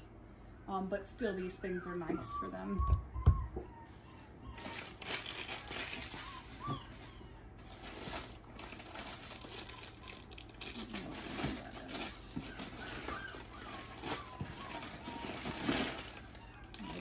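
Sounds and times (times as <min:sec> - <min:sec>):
plastic packaging crinkling: 0:04.6 - 0:17.0.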